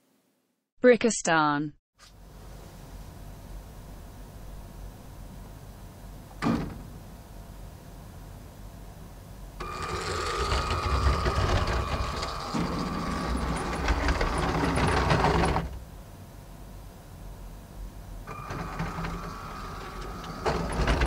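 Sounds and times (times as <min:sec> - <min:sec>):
toy train motors whining: 0:09.6 - 0:15.7, 0:18.3 - 0:21.0
plastic wheels clicking on track: 0:09.8 - 0:15.7.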